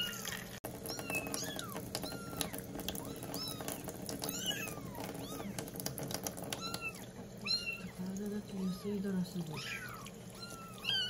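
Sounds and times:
kittens mewing: 0.0s - 5.8s, 6.4s - 8.0s, 8.6s - 11.0s.

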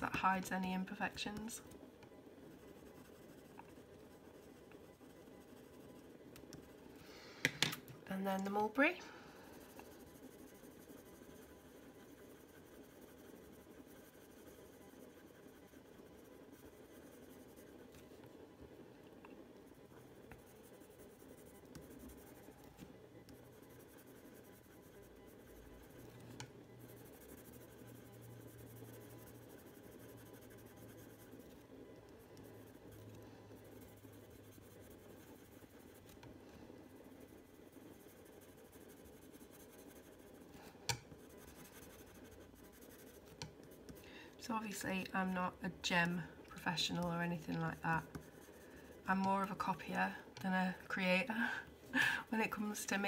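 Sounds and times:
pencil scratching on paper: 2.5s - 6.8s, 9.6s - 18.0s, 19.8s - 36.3s, 36.9s - 40.5s, 41.2s - 44.0s, 44.6s - 51.2s.

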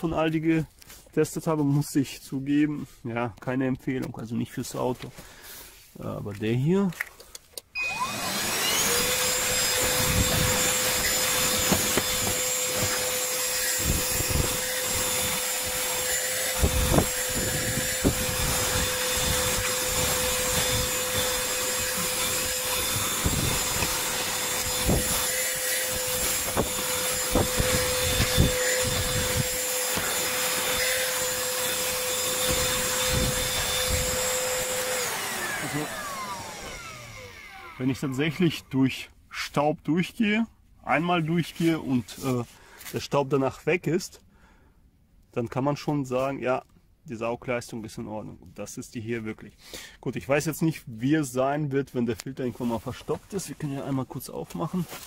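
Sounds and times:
handheld vacuum motor whining: 7.7s - 38.4s
nozzle scraping on carpet: 8.6s - 37.4s.

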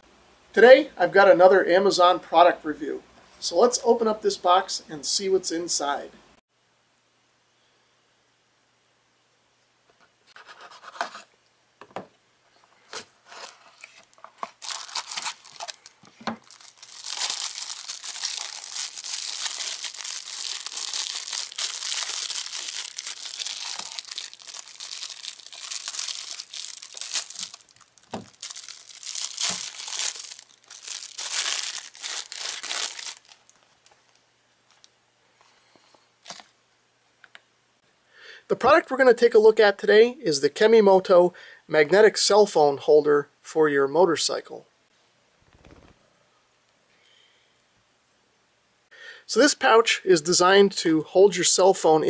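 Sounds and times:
plastic bag crinkling and tearing: 13.3s - 34.2s.

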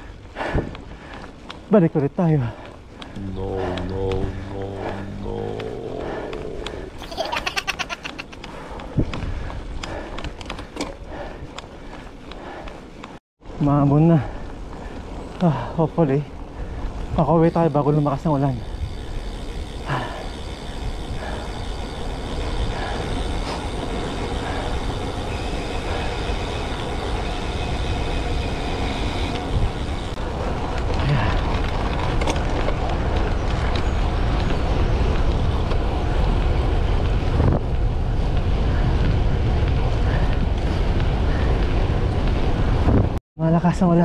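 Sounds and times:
wind rushing over microphone: 8.0s - 10.6s, 16.2s - 43.8s.

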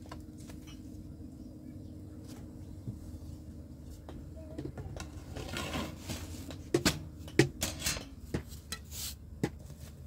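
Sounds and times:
brushing and scraping: 5.0s - 10.0s.

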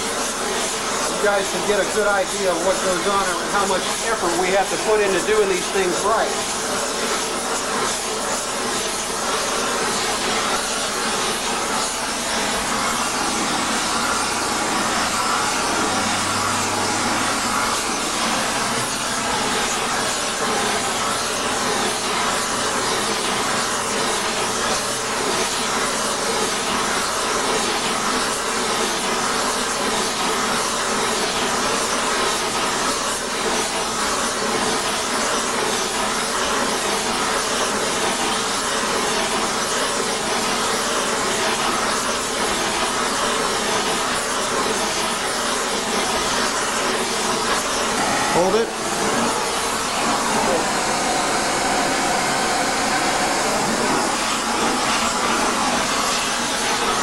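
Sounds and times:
torch flame hissing: 0.2s - 25.4s, 44.4s - 57.0s.

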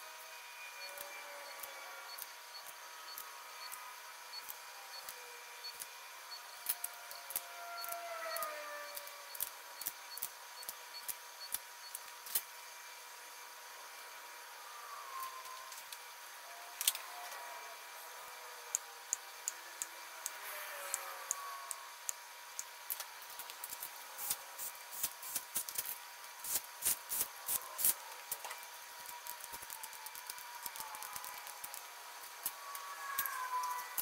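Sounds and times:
ratchet wrench clicking: 18.7s - 28.4s.

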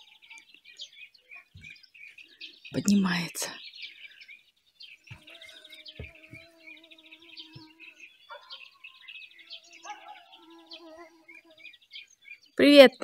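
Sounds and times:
birds chirping and trilling: 0.0s - 13.0s
dull thumps: 6.0s - 6.5s.

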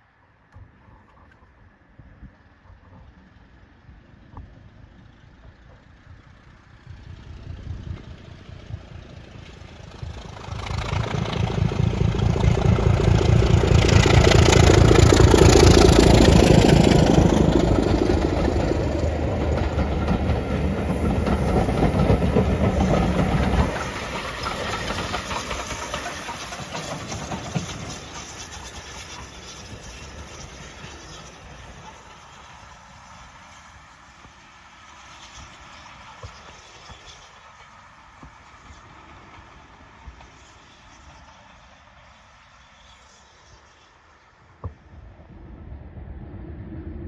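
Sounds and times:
diesel locomotive engine running: 2.4s - 46.9s
coaches clattering over rails: 9.4s - 32.9s.

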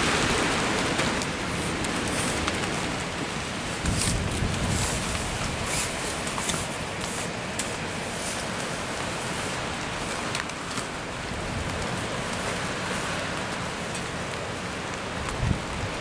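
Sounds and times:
rain hiss: 0.0s - 16.0s
raindrop ticks: 6.1s - 16.0s.

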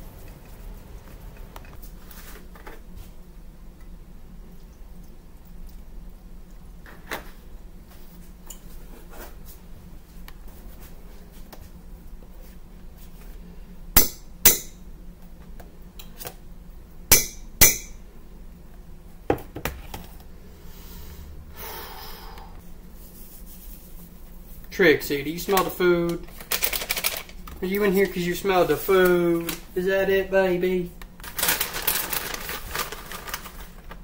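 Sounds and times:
utensils knocking on a saucepan: 17.1s - 18.0s.

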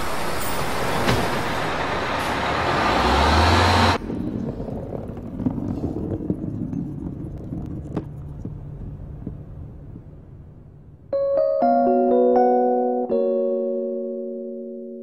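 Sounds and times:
bus engine rumble: 0.0s - 5.8s
electric piano chord: 11.1s - 15.0s.

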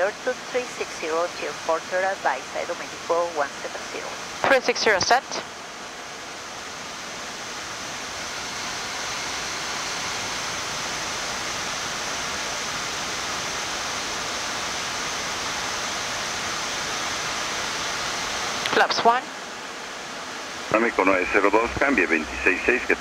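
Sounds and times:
steady rush of air: 5.3s - 23.0s.

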